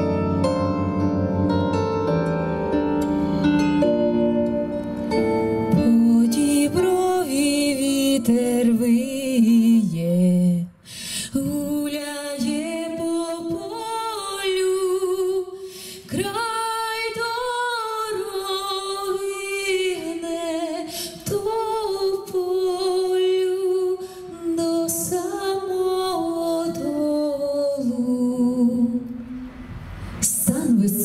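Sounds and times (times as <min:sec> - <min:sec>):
woman singing unaccompanied: 0:05.6 - 0:29.2, 0:30.2 - 0:31.0.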